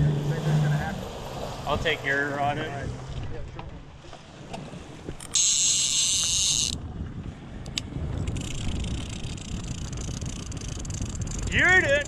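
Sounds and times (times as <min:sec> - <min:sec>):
outboard motor rumble: 0:00.0 - 0:12.0
water: 0:00.0 - 0:12.0
fishing reel drag screaming: 0:05.3 - 0:06.8.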